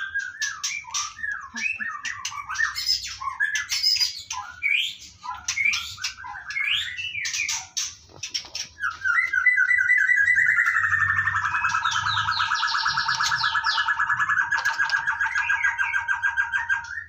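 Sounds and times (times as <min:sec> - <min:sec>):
bird chirps and squawks: 0:00.0 - 0:17.0
fast bird trill: 0:00.0 - 0:17.0.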